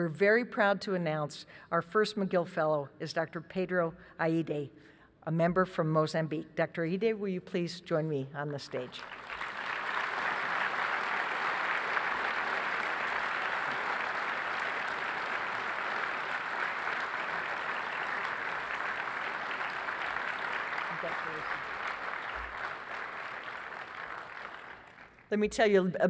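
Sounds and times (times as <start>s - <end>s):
audience applauding: 8.8s - 25.3s.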